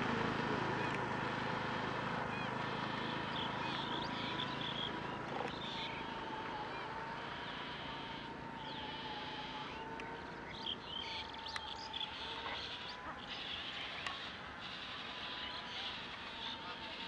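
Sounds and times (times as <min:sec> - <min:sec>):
faint steady whine: 0:00.0 - 0:17.0
distant high chirps: 0:00.8 - 0:17.0
soft clicks: 0:11.5 - 0:11.7.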